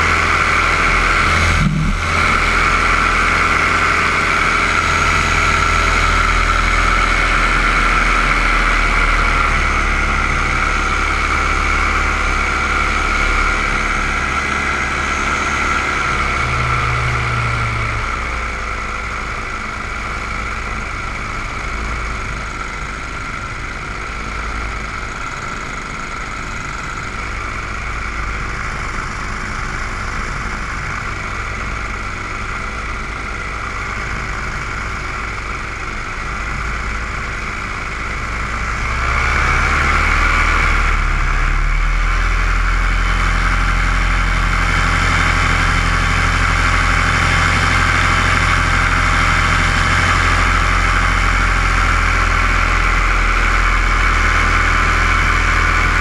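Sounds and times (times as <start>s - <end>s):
drone propellers whirring: 0.7s - 6.7s.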